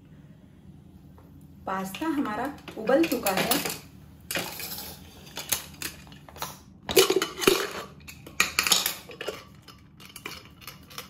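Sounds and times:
cookware clattering on stone counter: 2.9 - 6.1, 6.9 - 11.0.

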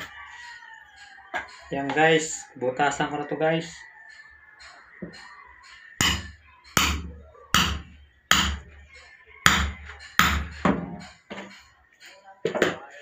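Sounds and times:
hammer striking a steel punch: 6.0 - 8.7, 9.4 - 11.1.

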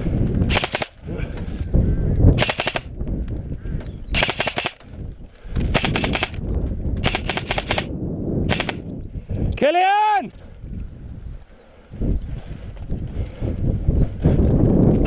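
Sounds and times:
airsoft rifle firing bursts: 0.5 - 1.0, 2.4 - 2.9, 4.2 - 4.8, 5.7 - 6.4, 7.0 - 7.9, 8.5 - 8.8.

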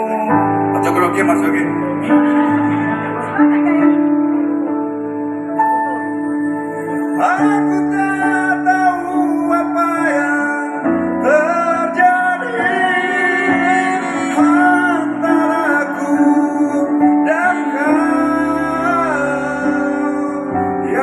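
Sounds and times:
man singing into microphone: 0.0 - 0.9, 7.1 - 21.0
sustained instrumental chords: 0.0 - 21.0
women singing: 12.4 - 16.3.

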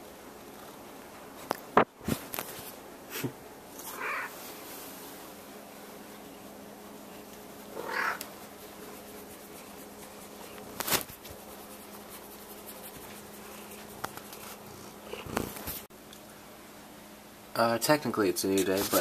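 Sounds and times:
steady low hum: 0.0 - 19.0
cat meowing: 3.9 - 4.3, 7.8 - 8.2.

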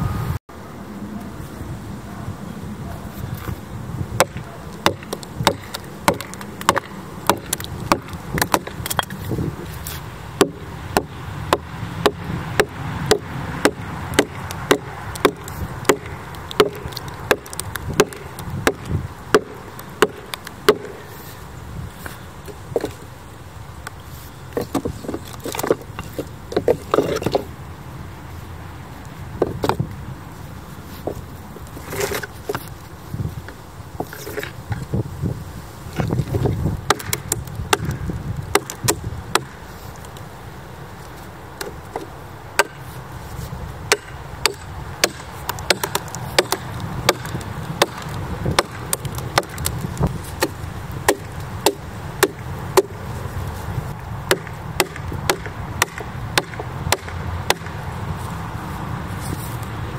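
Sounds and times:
axe striking wooden wedges: 4.2 - 9.4, 10.4 - 21.1, 24.6 - 27.5, 36.0 - 39.6, 41.6 - 42.9, 43.9 - 53.0, 54.2 - 57.8.

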